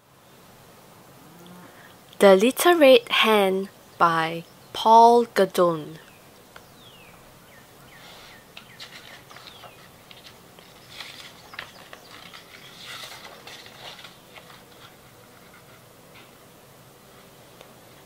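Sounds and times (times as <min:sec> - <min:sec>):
book pages turning: 0:08.3 - 0:16.3.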